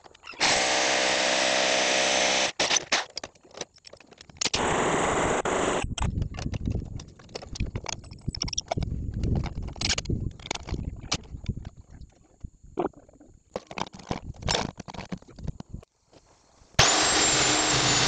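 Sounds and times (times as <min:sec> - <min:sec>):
power drill whining: 0:00.3 - 0:03.0, 0:16.8 - 0:18.0
metal parts clicking and knocking: 0:02.5 - 0:04.6, 0:05.8 - 0:12.5, 0:13.5 - 0:15.9.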